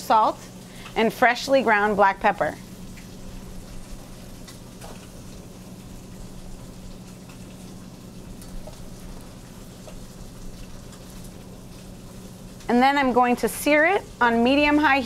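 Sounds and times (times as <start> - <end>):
kitchen ventilation hum: 0.0 - 15.0
faint light ticks of seasoning: 4.4 - 5.4, 6.6 - 7.8, 8.4 - 12.7.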